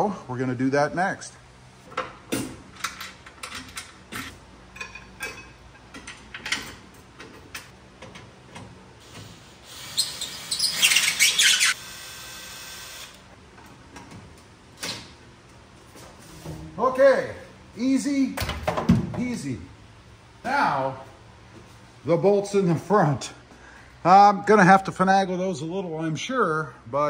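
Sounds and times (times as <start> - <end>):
cordless drill running: 9.6 - 13.2.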